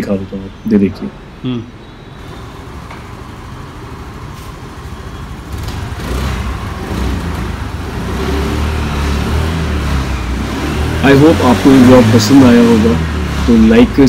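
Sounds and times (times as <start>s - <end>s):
scooter engine running: 2.2s - 11.4s.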